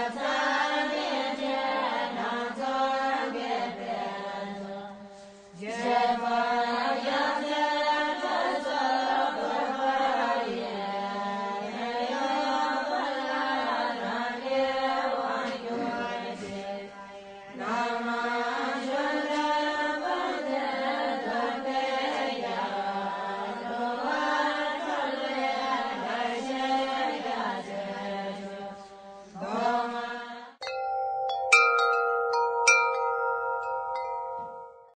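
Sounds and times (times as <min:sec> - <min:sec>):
voices chanting: 0:00.0 - 0:30.6
chimes ringing: 0:30.6 - 0:35.0.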